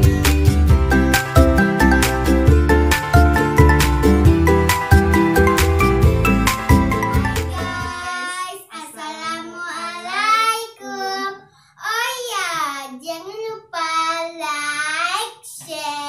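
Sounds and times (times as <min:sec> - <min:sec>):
girl singing in high voice: 0:07.5 - 0:11.9.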